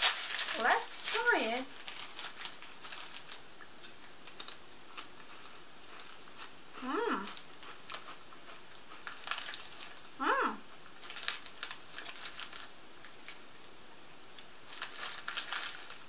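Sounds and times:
plastic snack packet crinkling: 0:00.0 - 0:06.5, 0:07.2 - 0:10.1, 0:10.9 - 0:13.5, 0:14.6 - 0:16.0
crackers crunching being chewed: 0:00.0 - 0:16.0
person humming: 0:06.8 - 0:07.4, 0:10.2 - 0:10.6.

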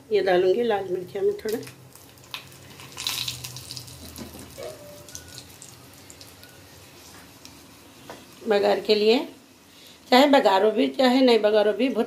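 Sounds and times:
spices sizzling in hot oil: 0:00.8 - 0:11.3
small crackles: 0:01.4 - 0:07.6.

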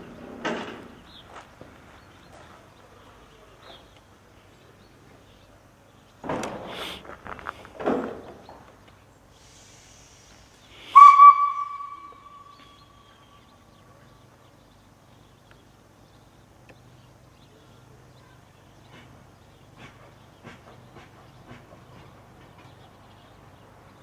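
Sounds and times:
loud whistle blast: 0:10.9 - 0:13.3.

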